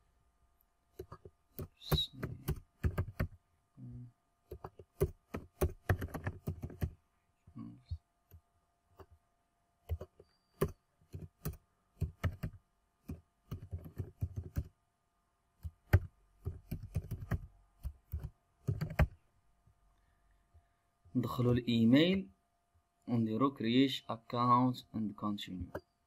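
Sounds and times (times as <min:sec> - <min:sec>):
computer keyboard typing: 0:01.0 - 0:03.4, 0:04.5 - 0:07.0, 0:09.9 - 0:14.7, 0:15.6 - 0:19.1.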